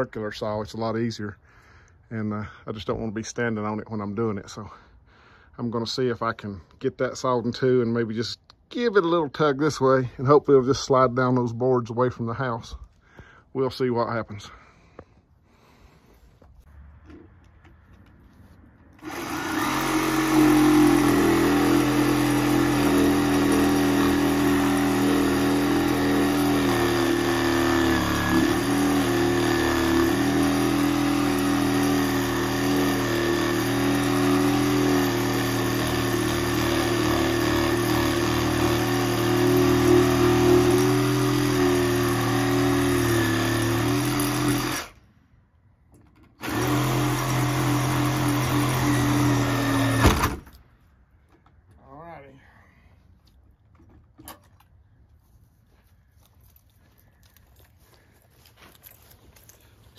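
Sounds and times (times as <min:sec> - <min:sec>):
circular saw cutting wood: 0:19.0 - 0:45.0, 0:46.4 - 0:50.3.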